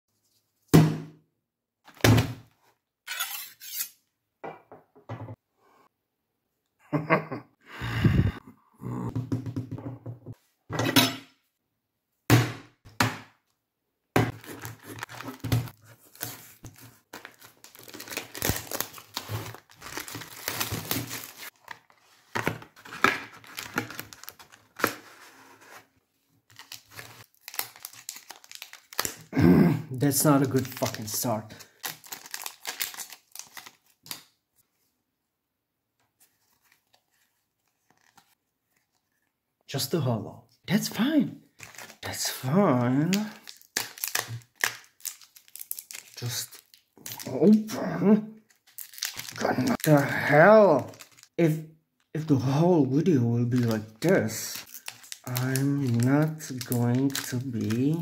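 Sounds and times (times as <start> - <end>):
plastic wrap crinkling: 14.3 - 22.1, 22.8 - 25.2, 26.5 - 29.3, 30.1 - 34.3, 41.6 - 42.1, 43.1 - 47.3, 48.4 - 50.1, 50.8 - 51.4, 53.5 - 58.0.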